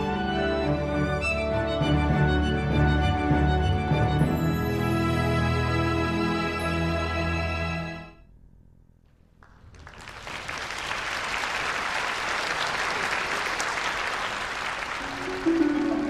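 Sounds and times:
theme music: 0.0s - 8.2s
audience applause: 9.4s - 16.0s.

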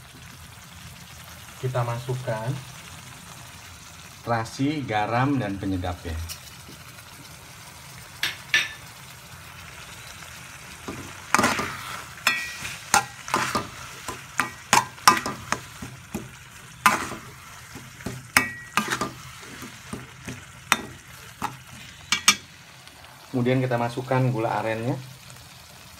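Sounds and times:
faint sizzle: 0.0s - 25.9s
metal spoon scraping metal pan: 10.9s - 22.5s.

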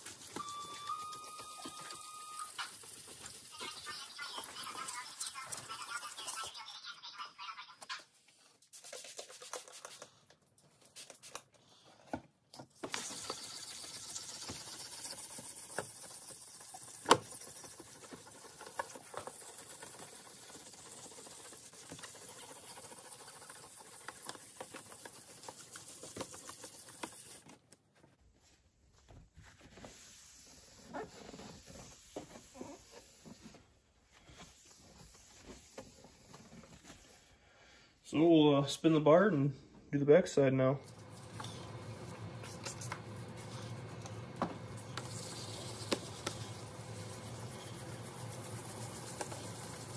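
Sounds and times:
wet sandpaper scrubbing plastic: 1.7s - 6.7s, 12.8s - 27.5s, 44.7s - 49.9s
cloth wiping wet lens: 44.7s - 49.9s.

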